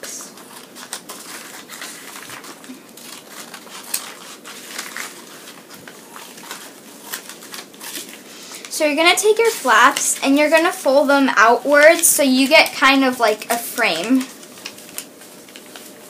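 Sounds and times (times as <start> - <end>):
scissors snipping paper: 0.0 - 10.8
paper rustling and crinkling: 0.0 - 16.0.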